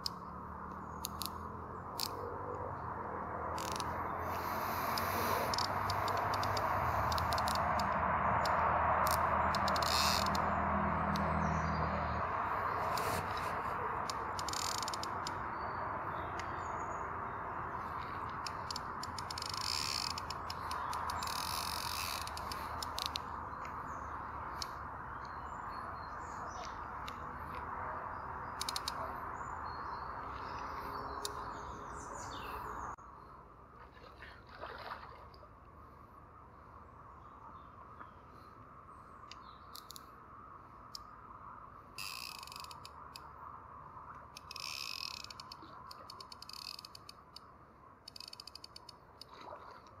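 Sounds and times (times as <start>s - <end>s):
sharp clicks: 0.0s - 2.2s, 4.9s - 10.5s, 18.0s - 23.8s, 28.6s - 29.1s, 44.2s - 49.4s
steady outdoor hiss: 0.0s - 50.0s
small birds chirping: 3.6s - 33.4s, 37.2s - 40.2s.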